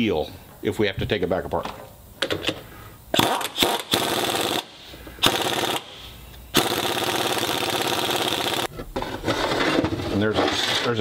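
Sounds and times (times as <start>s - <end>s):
pneumatic impact wrench hammering: 3.1s - 8.7s.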